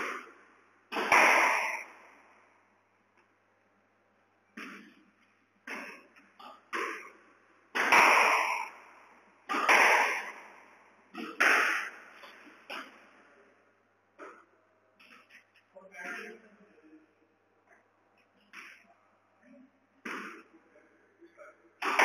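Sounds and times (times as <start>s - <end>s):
squash ball hit with racket: 0.0s - 2.1s, 4.6s - 5.0s, 5.6s - 13.0s, 20.0s - 20.5s, 21.8s - 22.0s.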